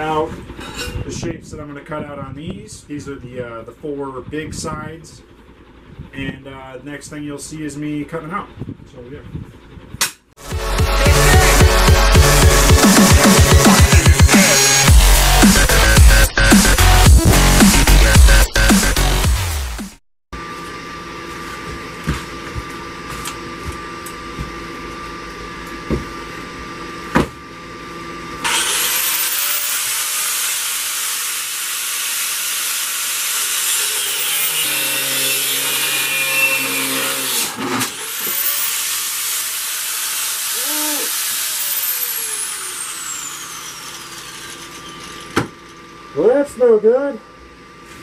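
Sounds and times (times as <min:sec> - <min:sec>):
angle grinder cutting steel: 0:10.4 - 0:19.5, 0:28.4 - 0:46.1.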